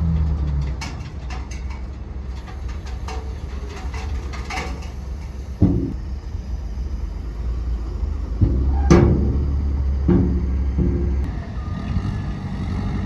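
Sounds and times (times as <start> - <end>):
metallic clanks: 0.0 - 6.1, 8.3 - 11.3
diesel machinery rumbling: 0.0 - 13.0.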